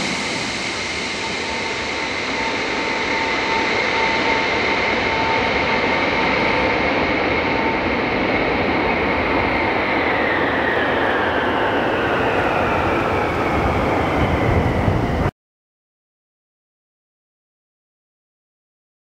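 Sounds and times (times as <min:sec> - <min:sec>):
high engine whine: 0:00.0 - 0:15.3
jet aircraft landing: 0:00.0 - 0:15.3.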